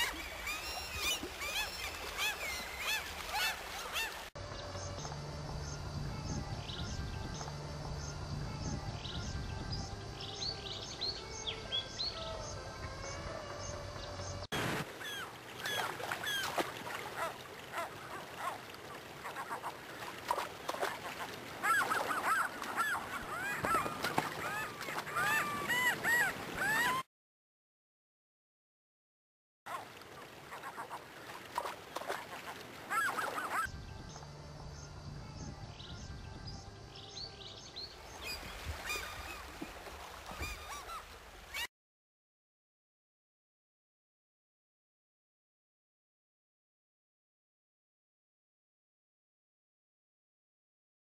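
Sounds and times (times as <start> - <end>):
gulls calling: 0.0 - 4.3, 14.6 - 27.1, 29.7 - 33.7, 38.0 - 41.7
shallow river rushing: 0.0 - 4.3, 14.5 - 27.0, 29.7 - 33.6, 37.9 - 41.6.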